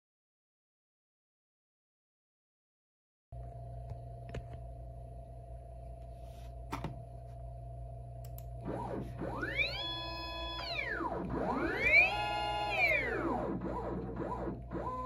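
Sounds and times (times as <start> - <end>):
low hum: 3.4 - 15.0
faint clicks: 8.2 - 8.5
stepper motors whining: 8.6 - 15.0.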